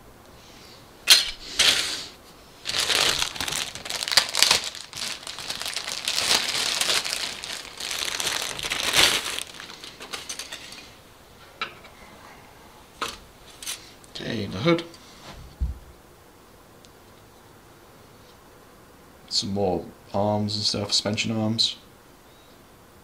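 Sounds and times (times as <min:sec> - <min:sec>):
plastic bag crinkling: 0:02.6 - 0:10.8.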